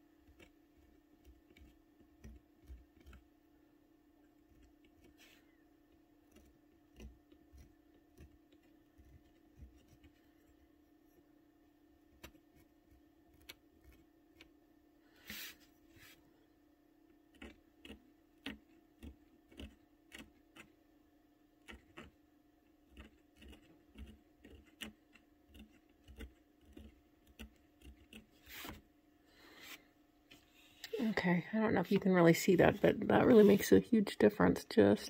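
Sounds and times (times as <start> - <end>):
knife scratching paper: 22.9 - 28.8.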